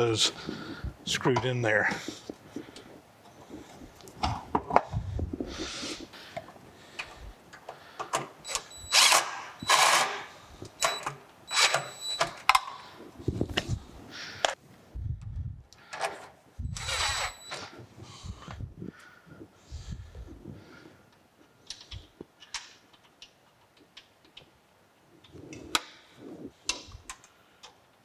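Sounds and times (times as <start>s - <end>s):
cordless drill whining: 8.5s - 10.2s, 11.5s - 12.2s, 16.7s - 17.7s.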